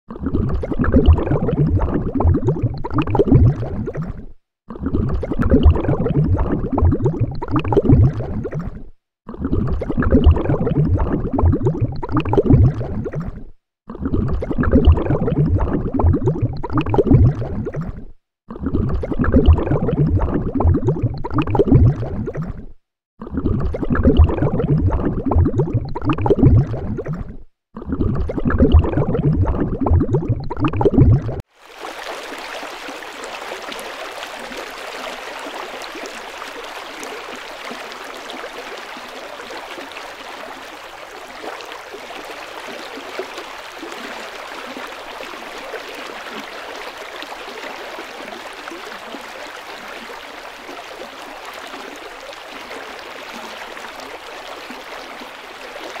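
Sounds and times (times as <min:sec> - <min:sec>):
deep churning water: 0:00.1 - 0:56.0
water rushing: 0:31.5 - 0:56.0.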